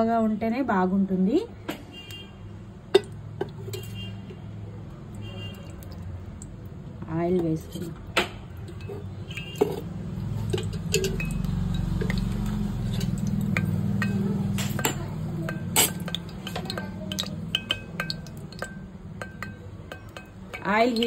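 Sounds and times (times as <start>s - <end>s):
oil pouring into pot: 8.6s - 20.4s
metallic clinks of utensils: 8.7s - 21.0s.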